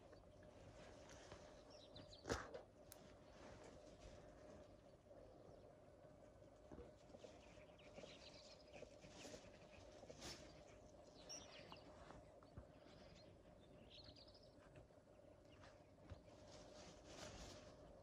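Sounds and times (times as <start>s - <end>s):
low steady hum: 0.0s - 18.0s
faint bird chirps: 7.0s - 17.7s.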